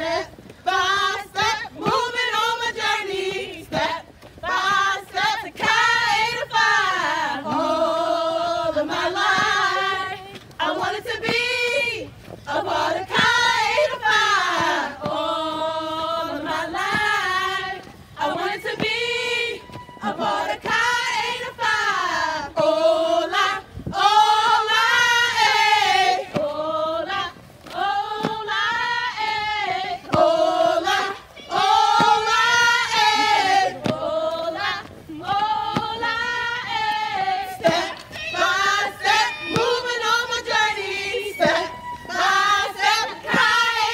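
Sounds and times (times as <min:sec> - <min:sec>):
women chanting in unison: 0:00.0 - 0:43.9.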